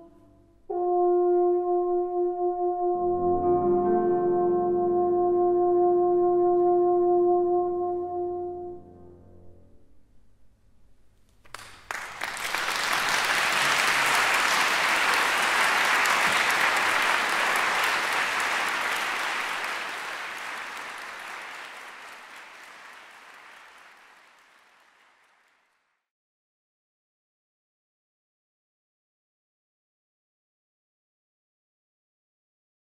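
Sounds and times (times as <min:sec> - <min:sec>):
audience applauding: 0:11.5 - 0:25.9.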